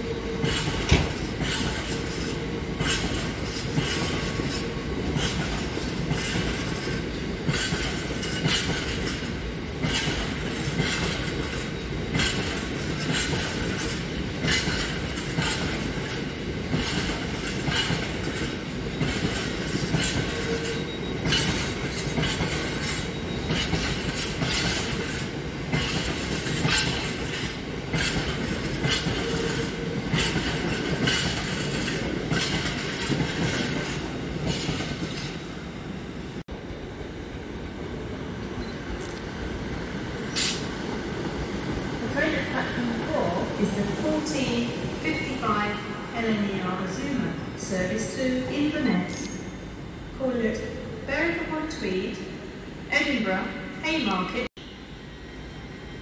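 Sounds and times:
freight train rumble: 0:00.0 - 0:56.0.

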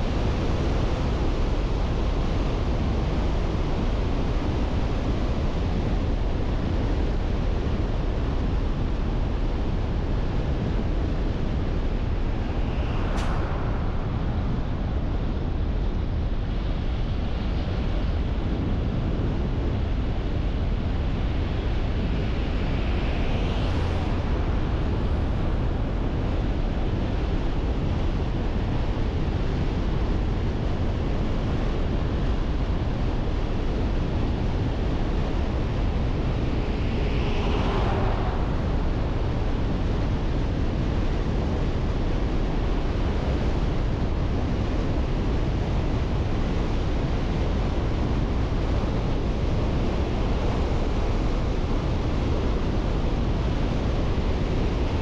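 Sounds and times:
road and tyre noise: 0:10.1 - 0:18.0, 0:18.6 - 0:30.0, 0:33.7 - 0:43.2.

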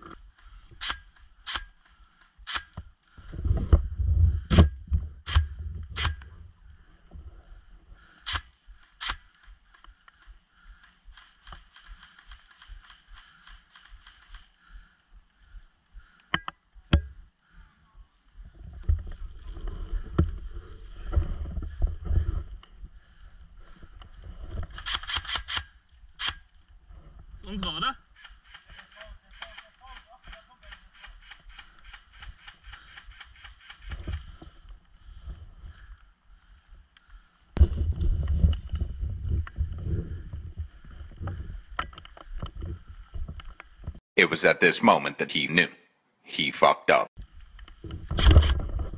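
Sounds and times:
sharp clicks: 0:08.2 - 0:14.6, 0:24.7 - 0:26.5, 0:28.2 - 0:34.3.

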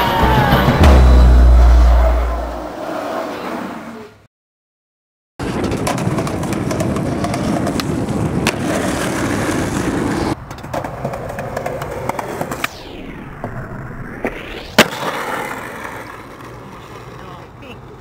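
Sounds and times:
skateboard wheels rolling on pavement: 0:01.9 - 0:04.2, 0:05.4 - 0:18.0
skateboard landing crack: 0:05.4 - 0:12.8, 0:13.4 - 0:17.1.

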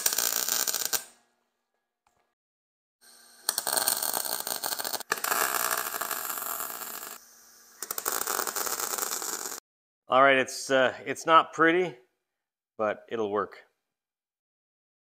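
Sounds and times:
welder arc crackling: 0:00.0 - 0:01.1, 0:03.4 - 0:09.6.

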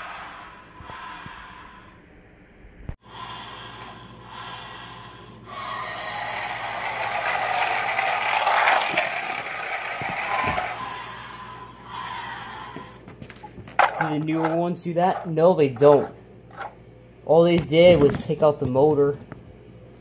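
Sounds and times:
toy truck motor whirring: 0:05.5 - 0:11.0
plastic wheels scraping on tile: 0:05.7 - 0:10.9, 0:13.8 - 0:16.8.

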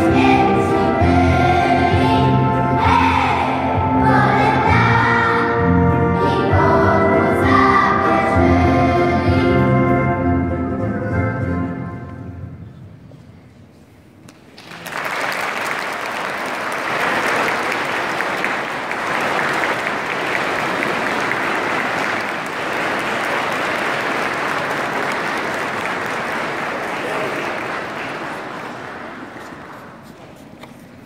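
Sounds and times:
music: 0:00.0 - 0:13.3
audience applauding: 0:14.4 - 0:30.0.

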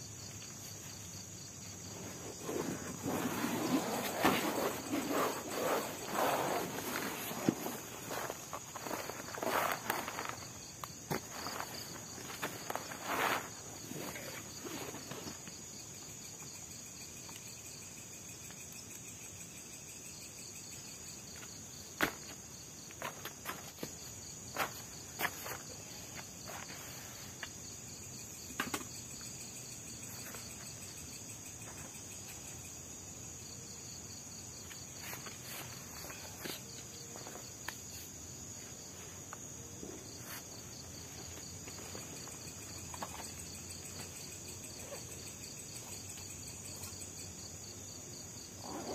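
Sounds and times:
crickets chirping: 0:00.0 - 0:48.9
camping gear clicks and knocks: 0:28.4 - 0:29.2.

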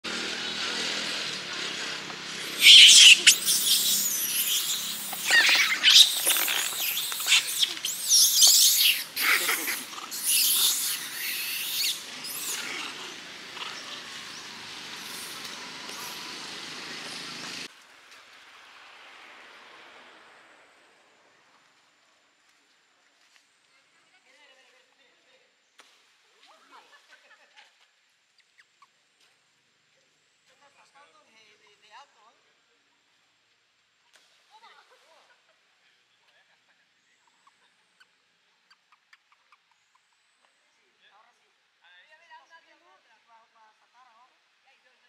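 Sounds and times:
faint hiss: 0:02.0 - 0:38.6
monkeys shrieking and squealing: 0:02.4 - 0:16.4.

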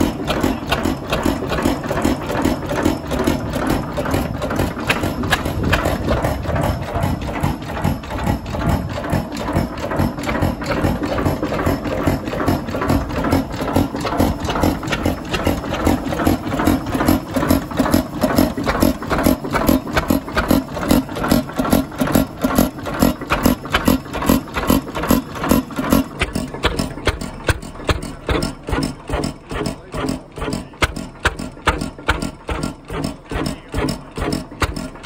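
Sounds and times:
diesel engine rhythmic beat: 0:00.0 - 0:35.0.

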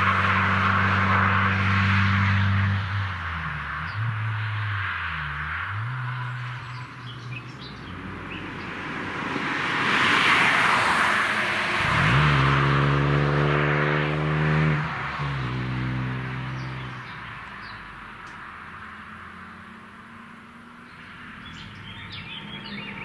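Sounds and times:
car engine accelerating: 0:00.0 - 0:23.0.

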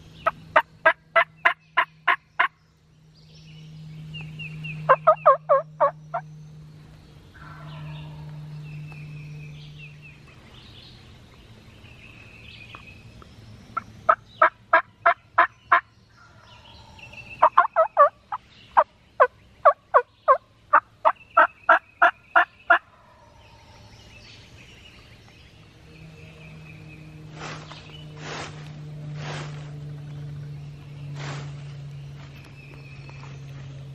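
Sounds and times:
faint songbird chirps: 0:00.0 - 0:33.9
turkey yelping: 0:04.9 - 0:05.9, 0:17.4 - 0:18.1.

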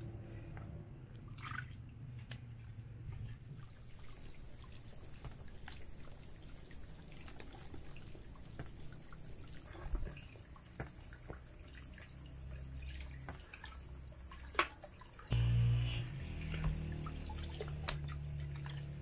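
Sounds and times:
hose water running into basin: 0:03.2 - 0:19.0
splashes and knocks: 0:12.8 - 0:15.1, 0:16.3 - 0:19.0.

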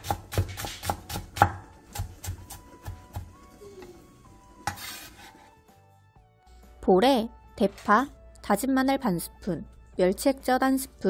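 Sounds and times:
knife chopping on wooden board: 0:00.0 - 0:03.4, 0:04.6 - 0:05.4.

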